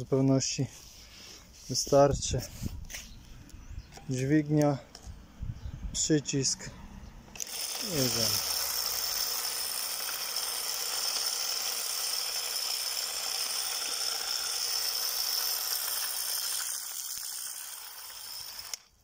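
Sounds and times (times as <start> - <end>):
spreader rattling granules: 7.4 - 19.0.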